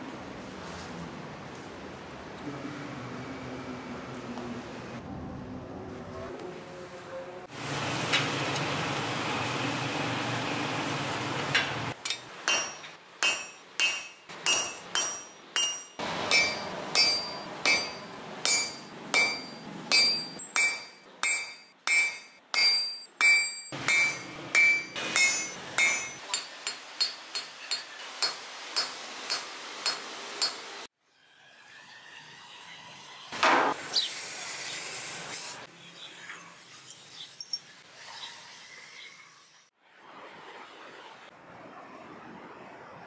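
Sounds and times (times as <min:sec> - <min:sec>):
hammer ringing on anvil: 0:12.0 - 0:30.6.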